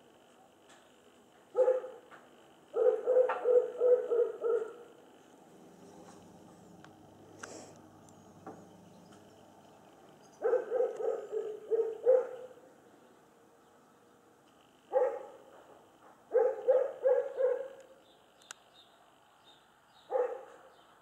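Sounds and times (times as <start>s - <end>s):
dog barking: 1.5s - 2.0s, 2.7s - 4.9s, 10.4s - 12.6s, 14.9s - 15.5s, 16.3s - 17.8s, 20.1s - 20.7s.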